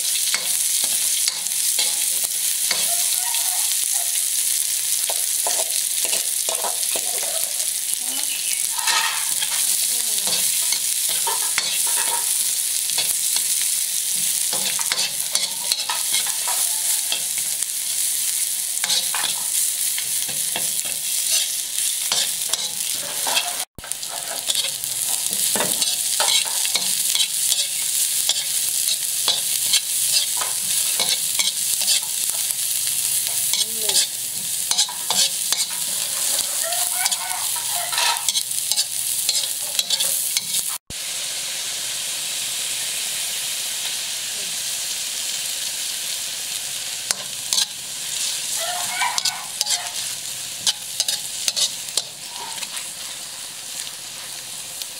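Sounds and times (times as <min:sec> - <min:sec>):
shallots sizzling in a wok: 0:00.0 - 0:54.9
metal spatula scraping a wok: 0:08.6 - 0:40.8, 0:47.1 - 0:54.4.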